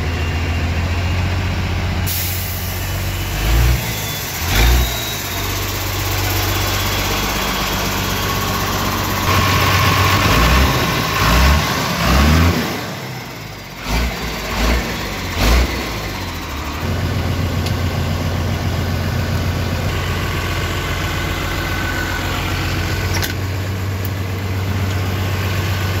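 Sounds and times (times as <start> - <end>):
diesel truck engine idling: 0.0 - 26.0.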